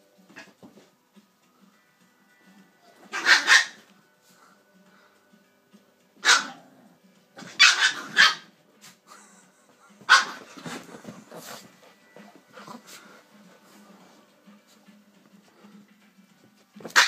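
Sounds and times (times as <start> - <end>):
dog barking: 3.1 - 3.8, 6.2 - 6.7, 7.4 - 8.5, 10.1 - 10.6.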